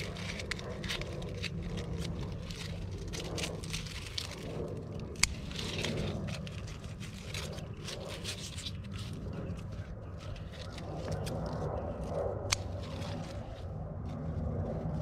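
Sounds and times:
low rumble: 0.0 - 15.0
plant leaves rustling and crackling: 0.0 - 15.0
stem snapping: 5.2 - 8.8.

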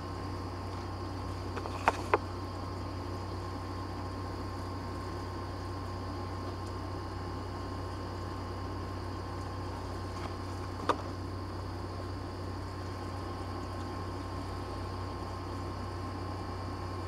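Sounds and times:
turntable motor hum: 0.0 - 17.0.

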